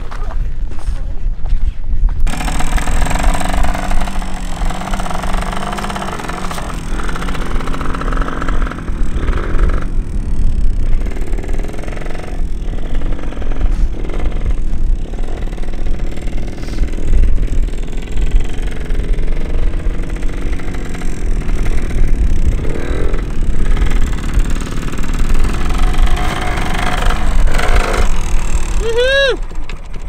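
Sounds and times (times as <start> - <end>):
low rumble: 2.1 - 30.0
dirt bike engine revving: 2.2 - 30.0.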